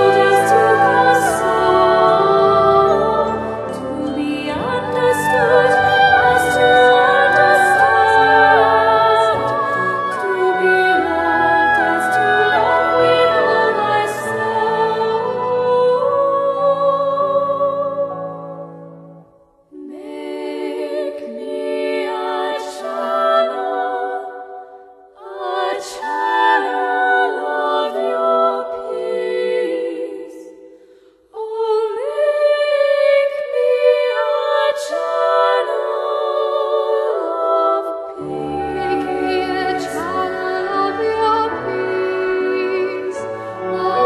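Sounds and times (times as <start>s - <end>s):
slow melodic music: 0.0s - 22.4s, 35.8s - 44.0s.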